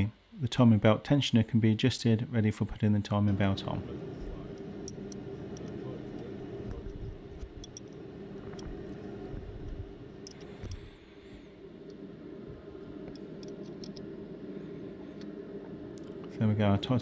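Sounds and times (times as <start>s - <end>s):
steady low hum: 0.0s - 17.0s
spanner clicking on metal: 7.4s - 8.7s.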